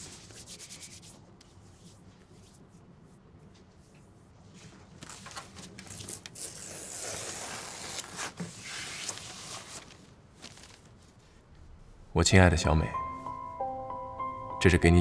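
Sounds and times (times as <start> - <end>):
paper envelope rustling and crinkling: 4.5 - 11.4.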